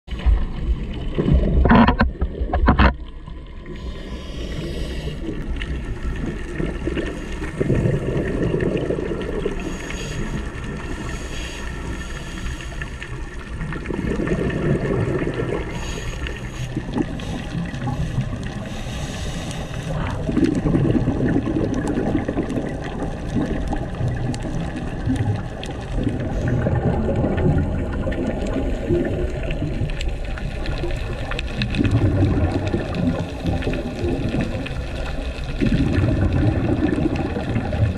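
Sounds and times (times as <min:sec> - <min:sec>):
gurgling exhaled bubbles: 0:00.1 - 0:37.9
regulator hissing inhale: 0:03.7 - 0:05.4, 0:09.6 - 0:13.2, 0:15.6 - 0:20.1.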